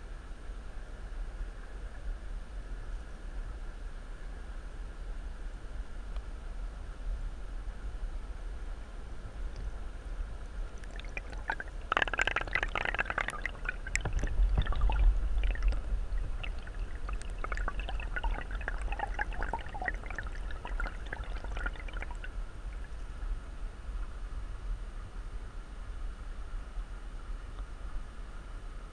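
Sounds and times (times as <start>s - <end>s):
stream water flowing underwater: 10.4s - 23.2s
underwater crackling and clicks: 10.8s - 22.9s.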